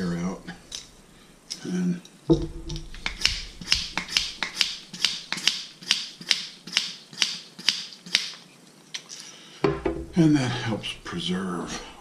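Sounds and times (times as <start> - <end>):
wine vacuum pump clicking and hissing: 2.3 - 8.3.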